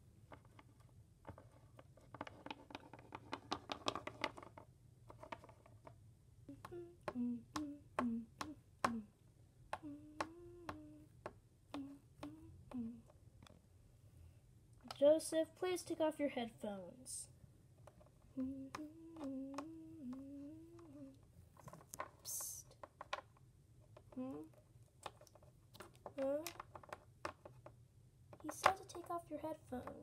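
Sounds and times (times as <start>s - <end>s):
plastic toys clicking on table: 17.8s - 23.4s, 24.0s - 30.0s.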